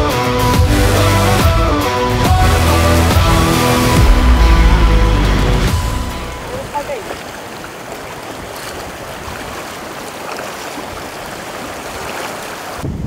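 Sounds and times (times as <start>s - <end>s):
stream rushing over stones: 2.2s - 13.0s
feet wading through water: 6.2s - 12.8s.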